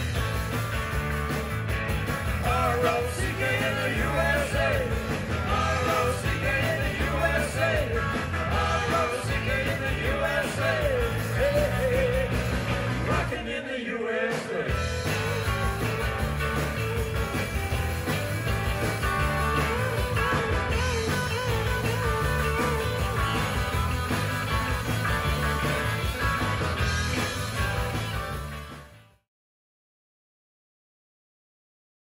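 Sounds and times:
rock band playing: 0.0 - 13.5, 14.3 - 29.2
lead guitar bending pitch: 14.8 - 28.4.

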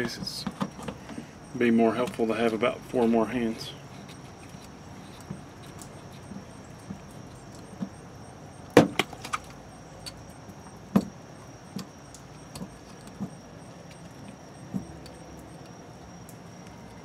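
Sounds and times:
plastic fitting clicking and clacking: 11.8 - 14.0.

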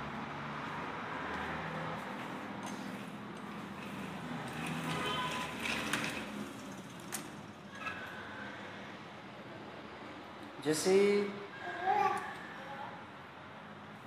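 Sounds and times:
plastic wheels rolling on tiles: 2.7 - 8.2.

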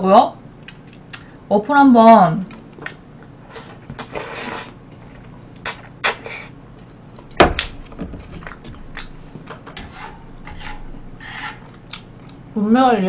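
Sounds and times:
mouth noises while eating: 2.5 - 6.6.

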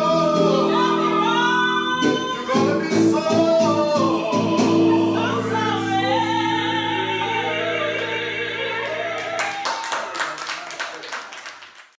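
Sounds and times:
blues band playing: 0.0 - 9.8
audience clapping: 8.9 - 12.0.

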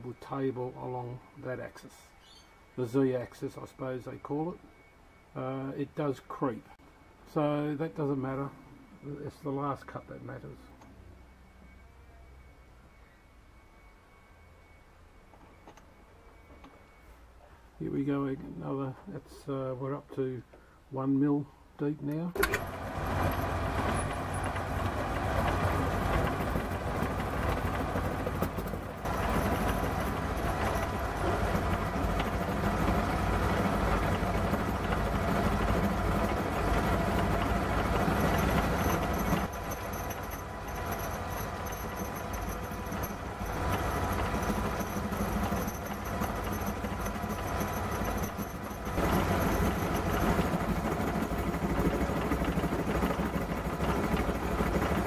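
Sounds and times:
milling machine motor hum: 22.4 - 55.0.

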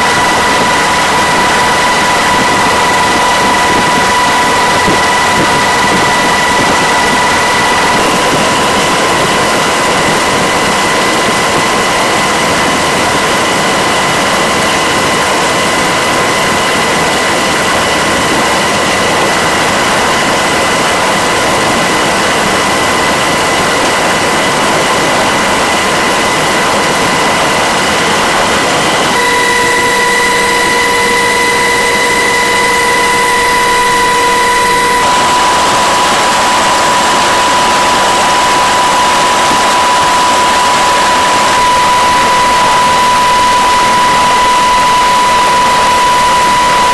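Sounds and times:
aircraft engine whine: 0.0 - 46.9.

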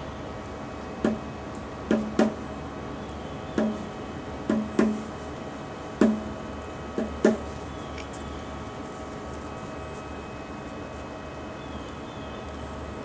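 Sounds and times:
drum hits with low ring: 1.0 - 2.5, 3.6 - 5.1, 6.0 - 7.5.

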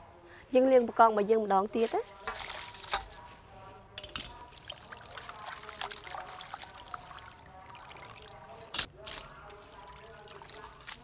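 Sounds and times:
water splashing in metal basin: 2.2 - 3.2, 4.0 - 11.0.

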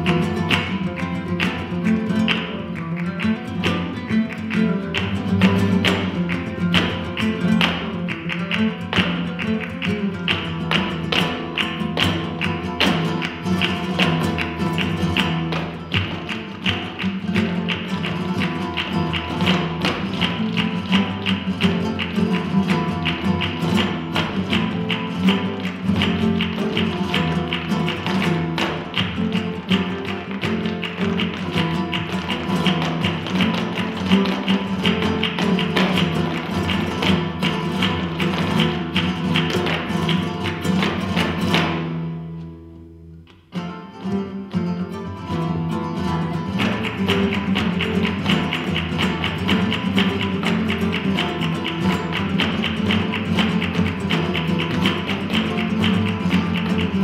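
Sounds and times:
rapid footwork on stage: 0.0 - 42.3, 43.5 - 57.0
hand claps: 0.0 - 42.6, 43.2 - 57.0
acoustic flamenco guitars: 0.0 - 57.0.

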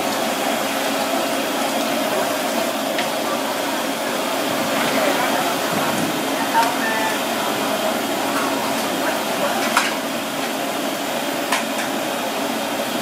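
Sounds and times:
gas burners roaring: 0.0 - 13.0.

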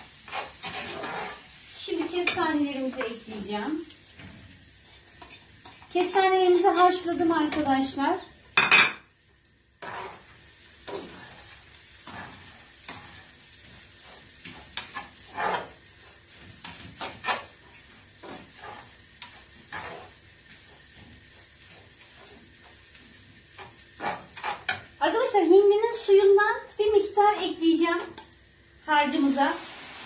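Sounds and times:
spatula scraping a frying pan: 0.0 - 7.7, 9.7 - 25.0
food sizzling: 0.0 - 30.0.

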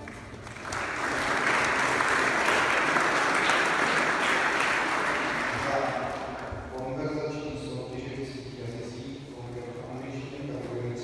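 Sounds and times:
audience applauding: 0.0 - 6.5.

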